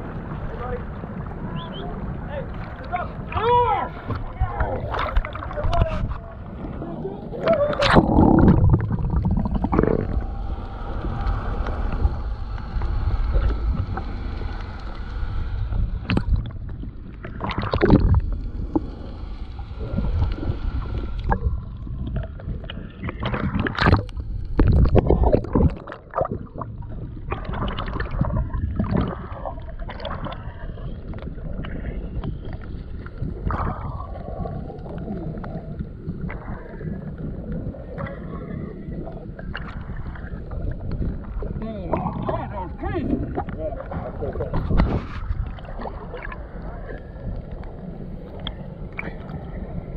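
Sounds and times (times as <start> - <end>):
muffled water sloshing: 0.0 - 49.9
splashes and bubbling: 0.0 - 49.9.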